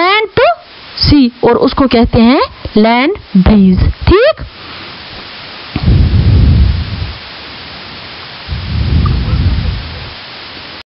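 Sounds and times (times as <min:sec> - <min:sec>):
steady hiss: 0:00.0 - 0:10.8
low rumbling on microphone: 0:05.2 - 0:10.2.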